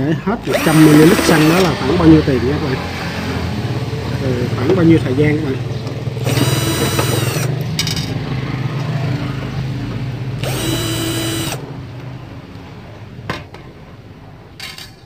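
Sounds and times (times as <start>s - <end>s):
cordless drill whirring: 0.4s - 2.0s, 6.2s - 7.6s, 10.4s - 11.7s.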